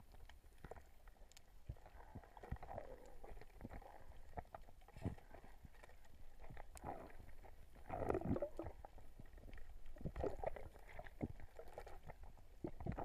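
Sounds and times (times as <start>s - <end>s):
underwater bubbles gurgling: 0.0s - 13.0s.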